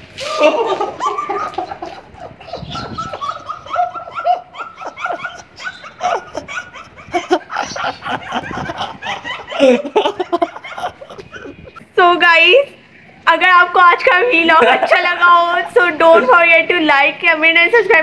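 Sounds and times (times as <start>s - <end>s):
young woman laughing: 0.2s - 11.8s, 14.2s - 16.5s.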